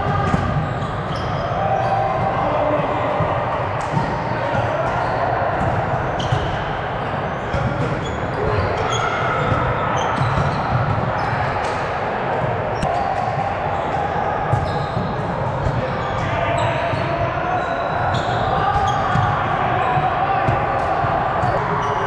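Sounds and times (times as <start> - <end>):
volleyballs struck and bouncing: 0.0 - 1.2
murmur of voices: 0.0 - 22.0
shoes squeaking on court: 0.3 - 1.5, 6.1 - 6.5, 14.5 - 15.1.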